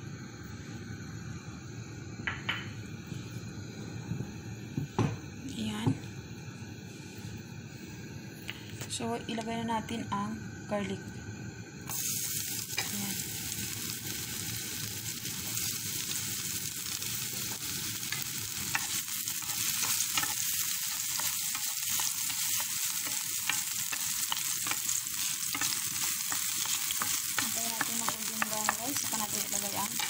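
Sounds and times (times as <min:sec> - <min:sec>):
garlic sizzling in oil: 0:11.8 - 0:30.0.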